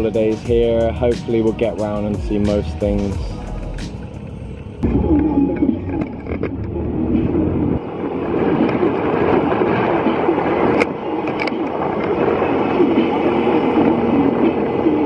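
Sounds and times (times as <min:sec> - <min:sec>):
wind rush: 0:00.0 - 0:15.0.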